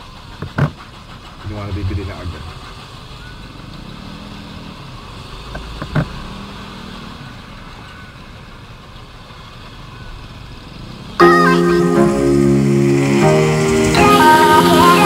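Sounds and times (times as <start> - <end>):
low road rumble: 0.0 - 15.0
motorbike engines: 0.0 - 15.0.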